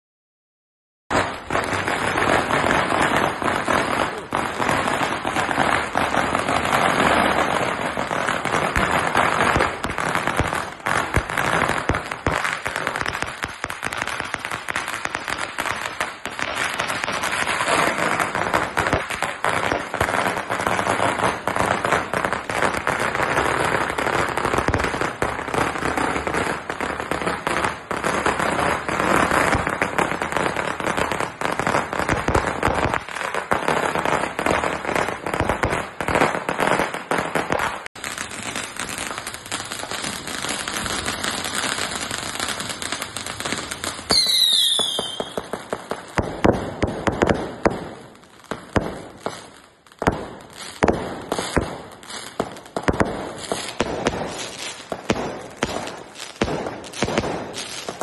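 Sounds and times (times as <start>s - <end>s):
firecrackers crackling: 1.1s - 58.0s
falling firework whistle: 44.1s - 45.6s
sharp firework bangs: 50.0s - 58.0s.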